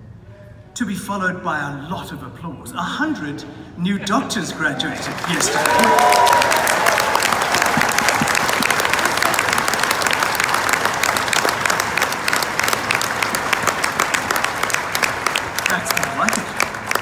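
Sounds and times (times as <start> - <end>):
audience applauding: 4.8 - 17.0.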